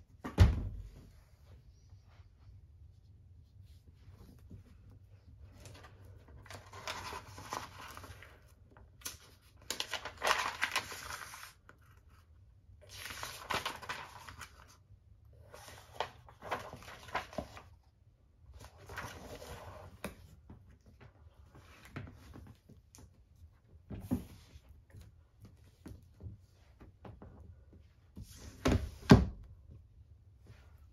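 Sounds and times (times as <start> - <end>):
book pages rustling and flicking: 3.7 - 14.8, 15.4 - 17.9, 18.5 - 27.2.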